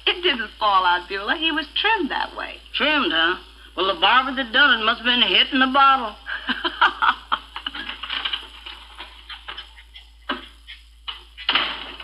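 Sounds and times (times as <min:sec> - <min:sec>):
laughter: 0:06.3 - 0:09.7.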